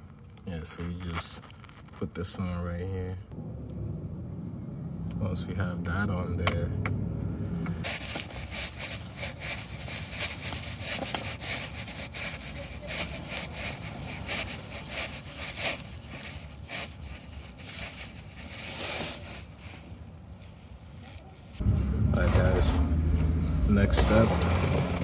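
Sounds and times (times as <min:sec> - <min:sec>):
plastic cap scraping on threads: 0:07.9 - 0:19.8.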